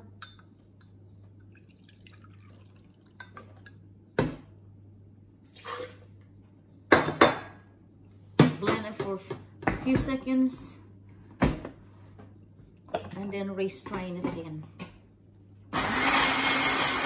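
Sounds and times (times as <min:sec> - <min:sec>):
water pouring into blender jar: 0:01.5 - 0:03.2
kitchenware clattering: 0:06.9 - 0:07.7.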